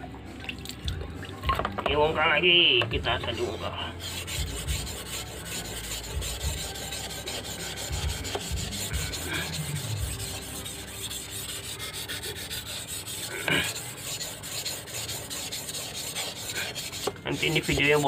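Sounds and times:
blade scraping on whetstone: 0:03.0 - 0:18.0.

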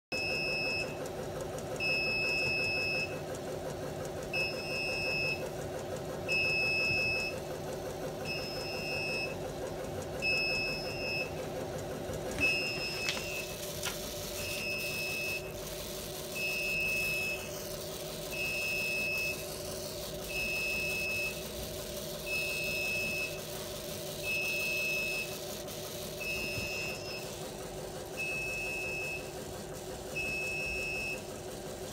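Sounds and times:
alarm buzzer beeping: 0:00.2 - 0:01.0, 0:06.3 - 0:07.4, 0:08.2 - 0:09.4, 0:10.2 - 0:11.3, 0:12.4 - 0:13.6, 0:14.2 - 0:27.5, 0:28.1 - 0:29.4, 0:30.1 - 0:31.3
printer humming: 0:00.2 - 0:31.9.

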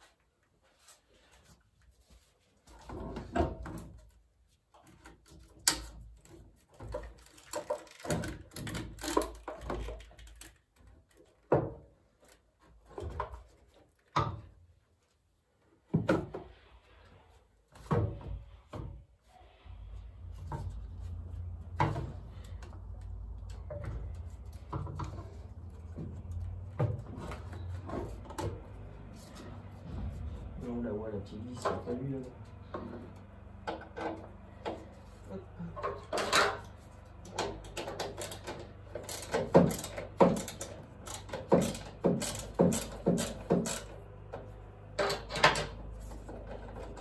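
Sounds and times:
steady low rumble: 0:29.5 - 0:31.6.

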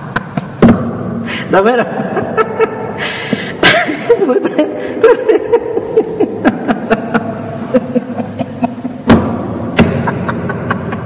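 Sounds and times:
loud knock: 0:00.6 - 0:01.2, 0:09.0 - 0:10.6.

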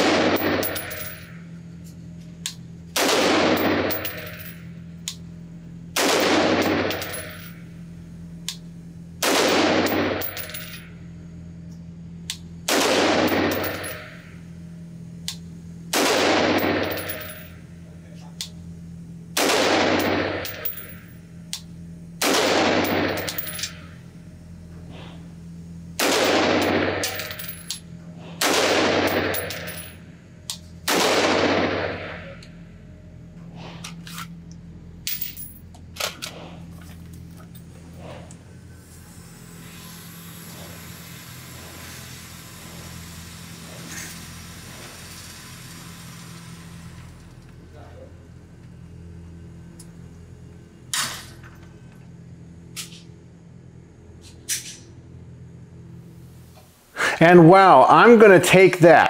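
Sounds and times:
gunshots echoing indoors: 0:00.0 - 0:00.8, 0:03.0 - 0:04.0, 0:06.0 - 0:07.0, 0:12.7 - 0:14.1, 0:15.9 - 0:16.9, 0:19.4 - 0:20.4, 0:22.2 - 0:23.3, 0:26.0 - 0:27.2, 0:28.4 - 0:29.7, 0:30.8 - 0:32.4.

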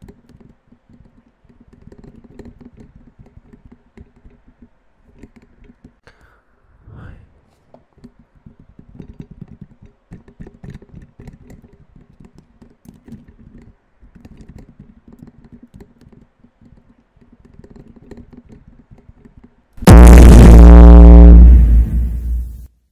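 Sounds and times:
loud distorted blast: 0:19.8 - 0:22.7.

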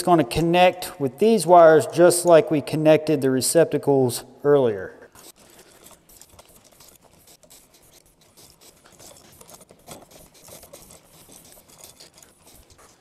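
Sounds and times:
wires scratching and rubbing: 0:05.1 - 0:13.0.

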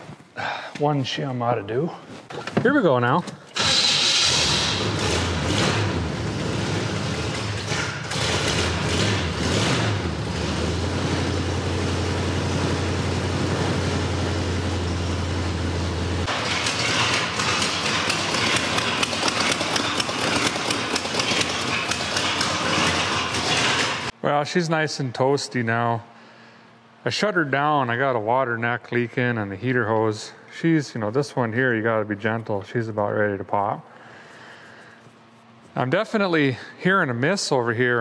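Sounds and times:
car engine rough idle: 0:04.7 - 0:24.1
engine ticking: 0:11.0 - 0:24.1.

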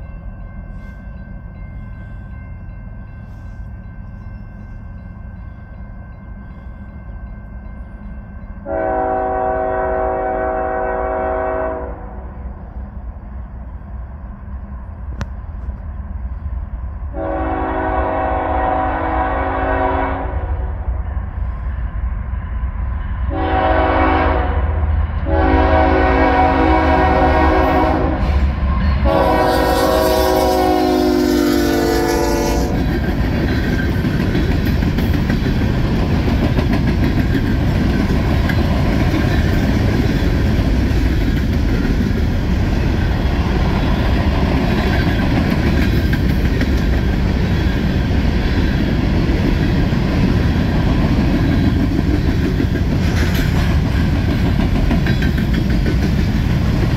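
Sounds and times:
freight train rolling by: 0:00.0 - 0:56.9
locomotive air horn blasts: 0:08.6 - 0:12.2, 0:17.1 - 0:20.7, 0:23.3 - 0:28.4, 0:29.0 - 0:32.8.

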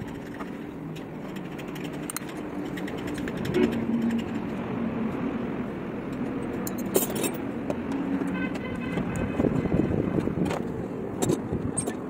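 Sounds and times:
vehicle horn: 0:08.3 - 0:10.0.

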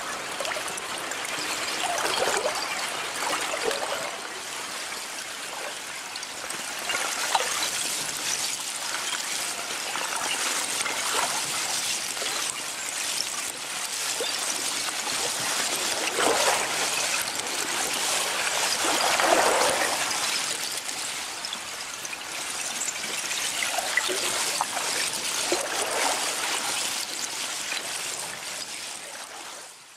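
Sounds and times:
water lapping: 0:06.7 - 0:22.6.

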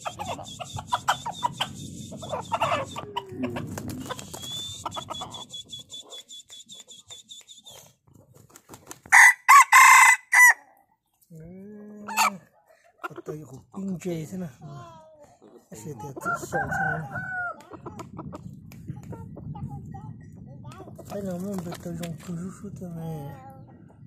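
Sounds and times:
rooster crowing: 0:09.1 - 0:10.6, 0:16.2 - 0:17.6.

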